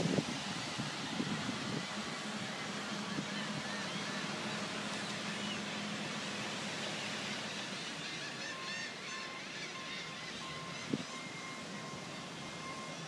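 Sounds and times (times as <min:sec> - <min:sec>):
wind on microphone: 0:00.0 - 0:02.0.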